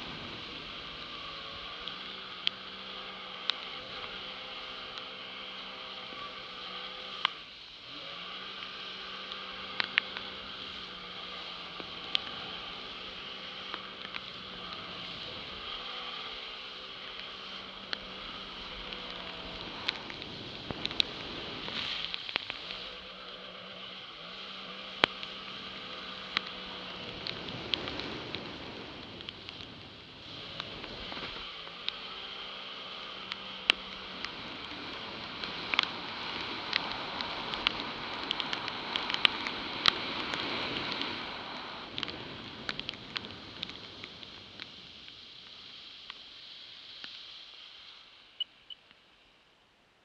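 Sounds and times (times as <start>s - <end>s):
jet ski engine humming: 0.0s - 47.0s
rush of water and spray: 0.0s - 49.6s
sharp ticks: 24.8s - 41.0s.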